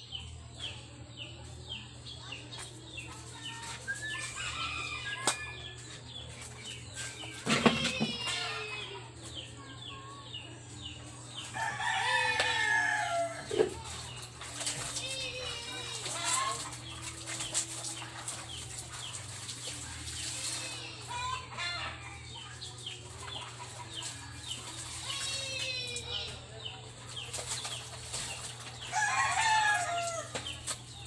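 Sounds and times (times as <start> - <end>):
roosters crowing: 4.2 - 5.8, 11.5 - 13.6, 28.8 - 30.6.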